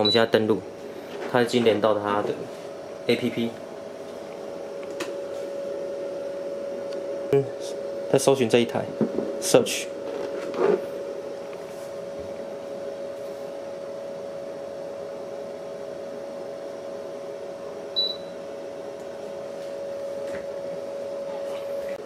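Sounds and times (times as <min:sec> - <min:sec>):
short electronic beep: 0:18.0 - 0:18.3.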